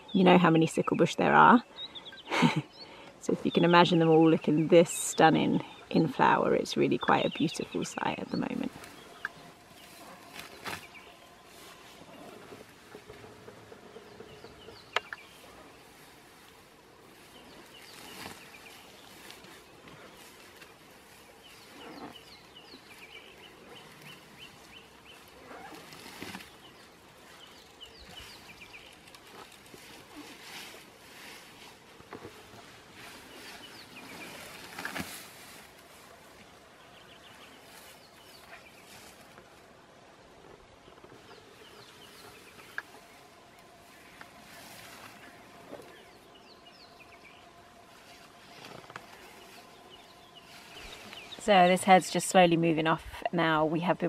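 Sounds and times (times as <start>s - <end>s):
small birds chirping: 0.0s - 39.6s, 40.5s - 54.0s
elephant tearing vegetation: 8.8s - 16.4s, 17.0s - 36.0s.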